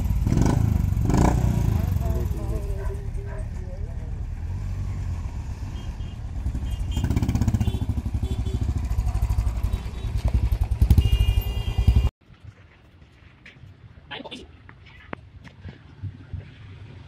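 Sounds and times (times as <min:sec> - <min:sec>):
motorcycle engines pulling away: 0:00.0 - 0:12.1.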